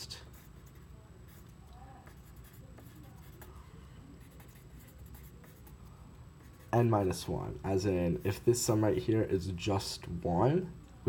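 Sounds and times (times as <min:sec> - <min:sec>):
pen scratching on paper: 0:00.3 - 0:03.6, 0:04.2 - 0:05.8.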